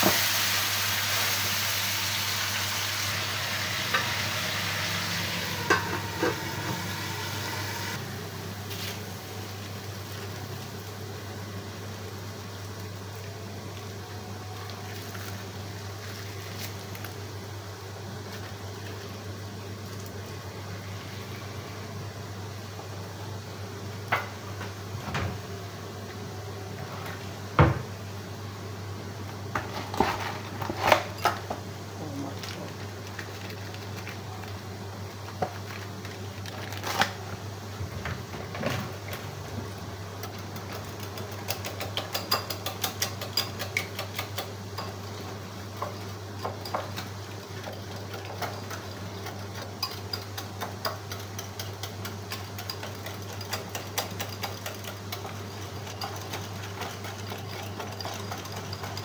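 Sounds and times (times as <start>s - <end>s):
knocks and clinks of utensils: 5.6s - 6.8s
spoon stirring in ceramic bowl: 40.6s - 45.0s, 45.8s - 59.0s.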